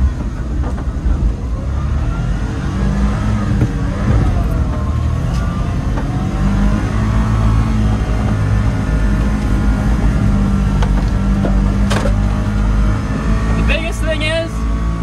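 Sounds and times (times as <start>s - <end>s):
truck engine running under load: 0.0s - 15.0s.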